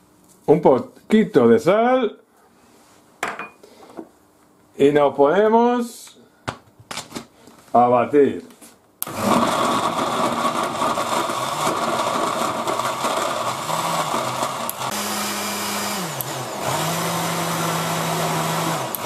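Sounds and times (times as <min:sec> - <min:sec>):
blender motor churning: 0:09.0 - 0:19.0.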